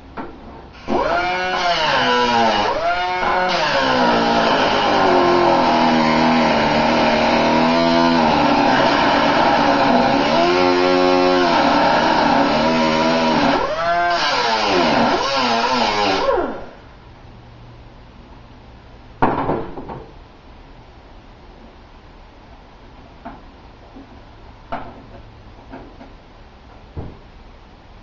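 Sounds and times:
power grinder on metal: 0.8 - 16.5.

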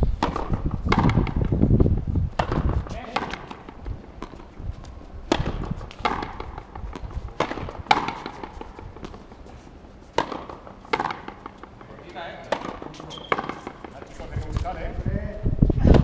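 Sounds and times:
ball cracking off racquet: 0.2 - 1.6, 2.4 - 4.5, 5.3 - 9.3, 10.1 - 14.7
ball smacking against wall: 0.2 - 1.6, 5.3 - 9.2, 10.2 - 11.6, 12.5 - 13.9.

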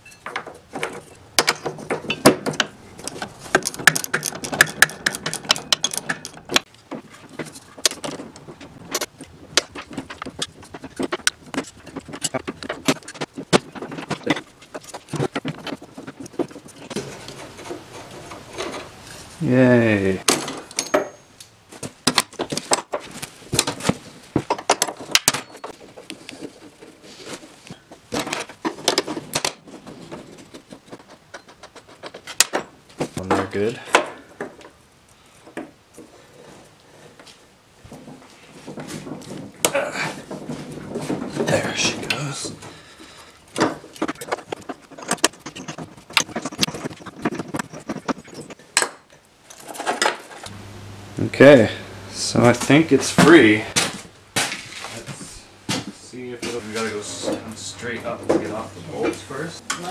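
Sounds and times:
metal tools and nuts clinking: 0.0 - 12.4, 20.3 - 21.6, 24.5 - 26.6.

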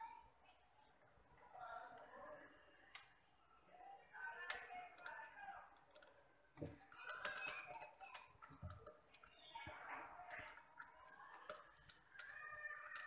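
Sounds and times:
faint clicks and light knocks: 4.4 - 13.0.

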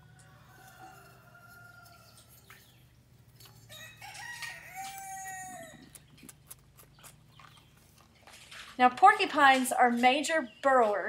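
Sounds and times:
rooster crowing: 0.0 - 2.3, 3.7 - 5.9.

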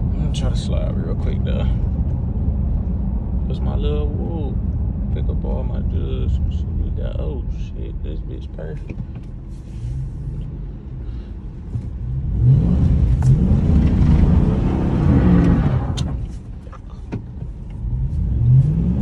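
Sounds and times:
truck engine revving: 12.1 - 16.2.

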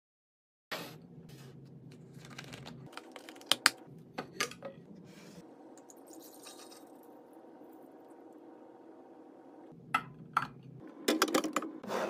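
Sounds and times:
juice pouring into glass carafe: 5.8 - 7.8.

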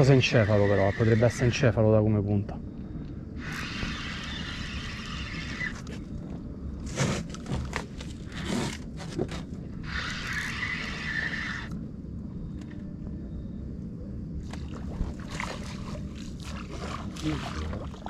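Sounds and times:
fishing reel whirring: 0.0 - 1.8, 3.4 - 6.2, 9.8 - 11.8.

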